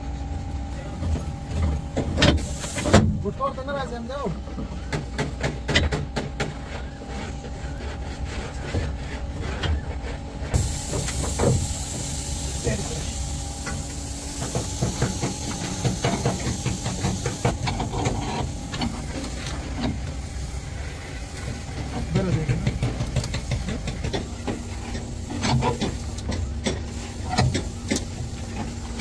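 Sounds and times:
steady hiss: 2.4s - 3.0s, 10.6s - 29.0s.

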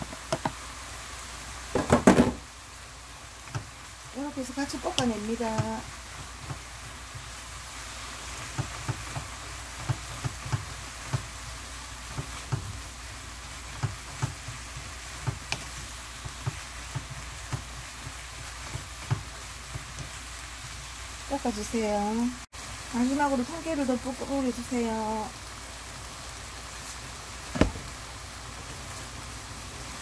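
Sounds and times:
food sizzling in a frying pan: 0.0s - 30.0s.

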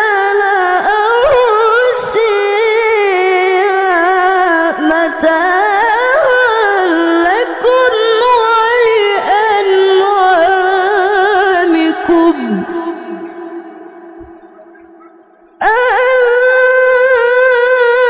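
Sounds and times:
boy reciting in melodic chant: 0.0s - 18.0s.

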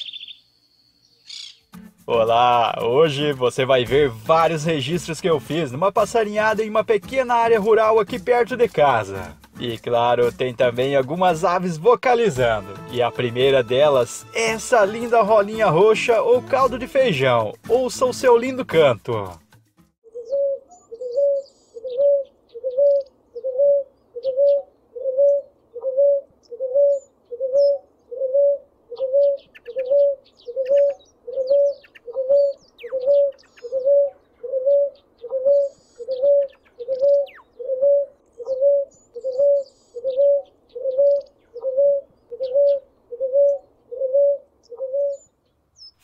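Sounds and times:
small birds chirping: 0.0s - 1.8s, 20.1s - 46.0s
dove cooing: 20.1s - 45.3s.

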